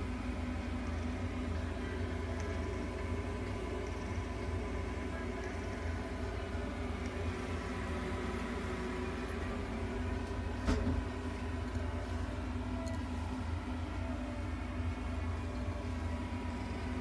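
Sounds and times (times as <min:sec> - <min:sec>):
faint steady tones: 0:00.0 - 0:17.0
low machine hum: 0:00.0 - 0:17.0.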